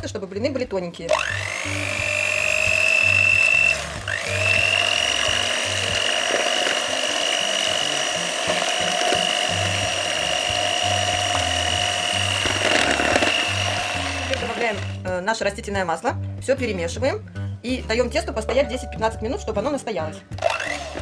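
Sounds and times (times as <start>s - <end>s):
electric hand mixer whining: 1.1s - 15.0s, 20.4s - 21.0s.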